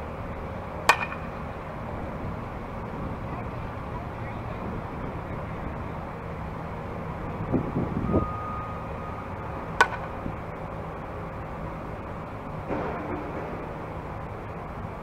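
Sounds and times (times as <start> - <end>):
bat hitting softball: 0.8 - 1.4, 9.8 - 10.2.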